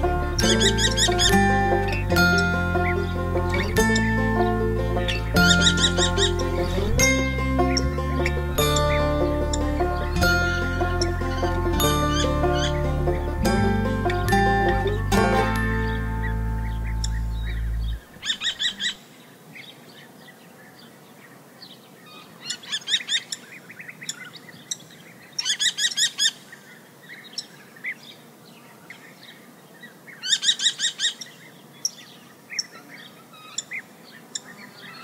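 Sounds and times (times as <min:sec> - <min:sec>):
kestrel shrill calls: 0:00.4 - 0:01.5, 0:05.1 - 0:06.8, 0:15.8 - 0:19.0, 0:25.4 - 0:26.4, 0:30.2 - 0:32.7
faint bird chirps: 0:15.8 - 0:35.0.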